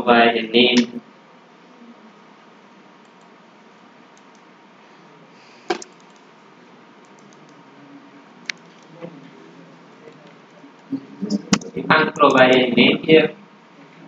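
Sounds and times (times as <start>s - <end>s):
faint room hiss: 0.0s - 14.0s
computer mouse click: 4.2s - 4.5s, 5.7s - 6.2s, 7.0s - 7.6s.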